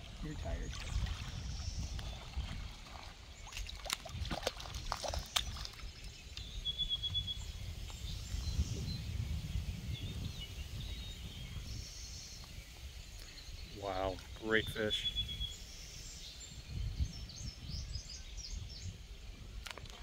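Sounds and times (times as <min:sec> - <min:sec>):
fish splashing in water: 0:02.1 - 0:05.9.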